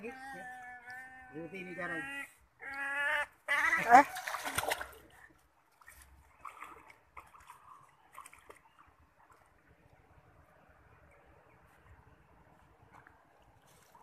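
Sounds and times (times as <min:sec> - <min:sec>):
water splashing and sloshing: 0:03.3 - 0:14.0.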